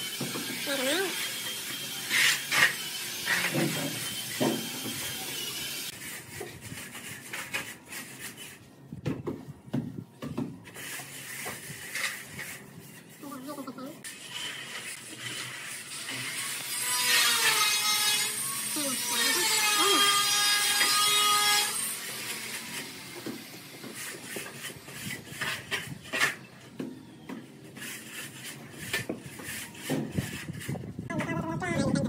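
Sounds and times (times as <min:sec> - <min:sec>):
metal straightedge scraping wet mortar: 0:00.6 - 0:04.8, 0:10.7 - 0:12.6.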